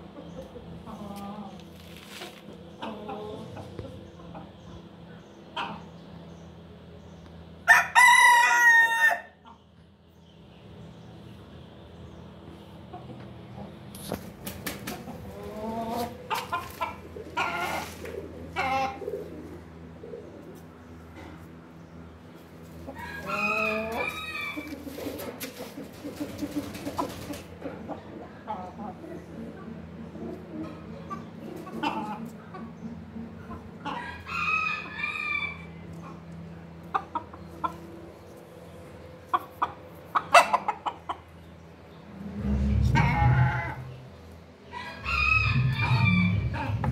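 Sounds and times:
chickens clucking and calling: 0:00.0 - 0:46.9
rooster crowing: 0:07.7 - 0:09.4, 0:22.9 - 0:24.8, 0:33.9 - 0:35.8, 0:44.7 - 0:46.9.

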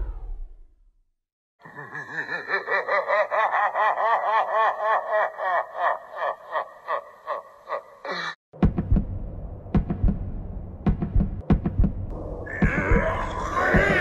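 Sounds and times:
villain laughter: 0:01.6 - 0:08.4, 0:12.6 - 0:14.0.

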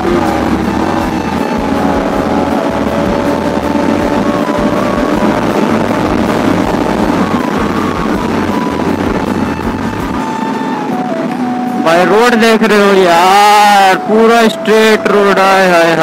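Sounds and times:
motorcycle engine cruising: 0:00.0 - 0:12.3
wind rush: 0:00.0 - 0:14.5
background music: 0:00.0 - 0:16.0.

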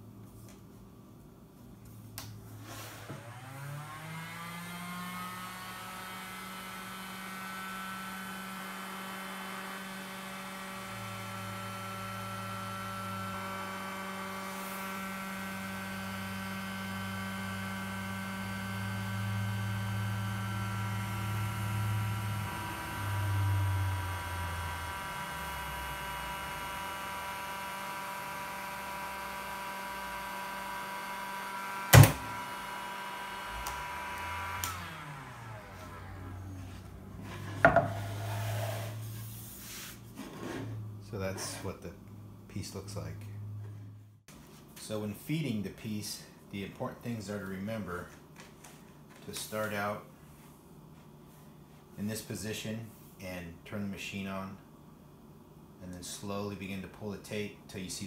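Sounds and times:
edge banding machine motor humming: 0:03.1 - 0:38.5.

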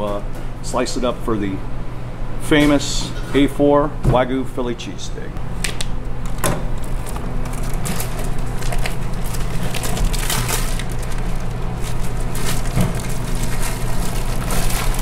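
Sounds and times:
steady low hum: 0:00.0 - 0:15.0
plastic bag crinkling: 0:06.3 - 0:15.0.

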